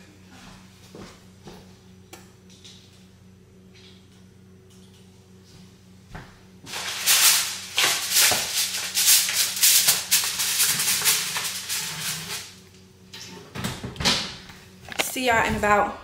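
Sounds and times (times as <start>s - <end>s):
aluminium foil crinkling: 6.7s - 12.6s.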